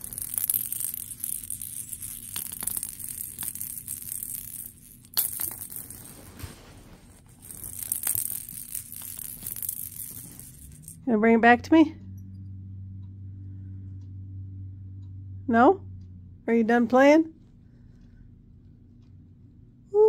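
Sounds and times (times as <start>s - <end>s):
plastic rattle toy clicking: 0.0s - 6.1s, 7.4s - 11.0s.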